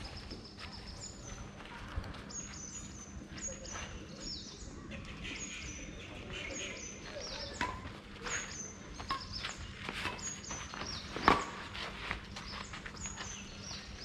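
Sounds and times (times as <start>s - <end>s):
birds chirping: 0.0s - 14.0s
racket striking shuttlecock: 11.2s - 11.6s.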